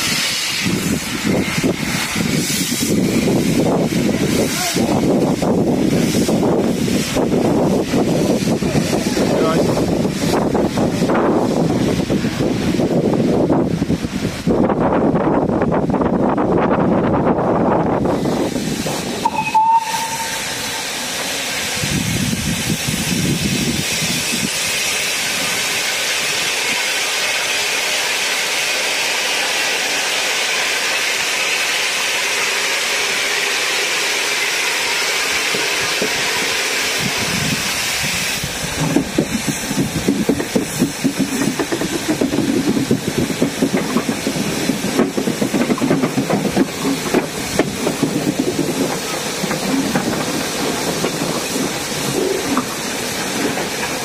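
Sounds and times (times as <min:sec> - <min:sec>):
steam locomotive hissing: 0:00.0 - 0:54.0
train running noise: 0:00.0 - 0:54.0
locomotive whistle: 0:19.2 - 0:20.8
locomotive exhaust beats: 0:35.4 - 0:54.0.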